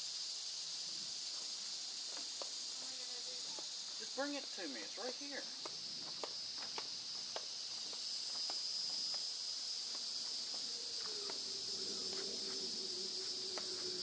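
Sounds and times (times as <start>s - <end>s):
insects chorus: 0.0s - 14.0s
faint low hum: 9.8s - 14.0s.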